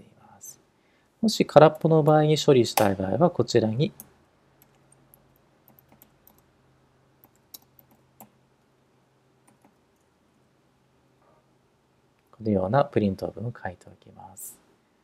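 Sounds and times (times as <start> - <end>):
faint low hum: 0.0 - 15.0
computer keyboard typing: 4.0 - 6.5, 7.2 - 8.4, 9.4 - 9.8.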